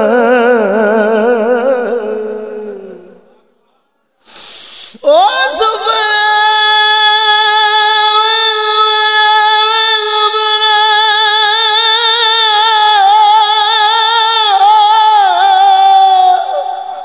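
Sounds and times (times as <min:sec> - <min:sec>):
man singing long held note: 0:05.0 - 0:17.0.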